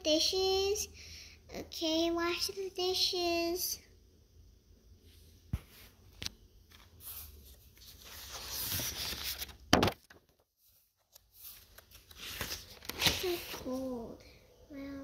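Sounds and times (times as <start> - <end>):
paper pages rustling: 5.6 - 14.0.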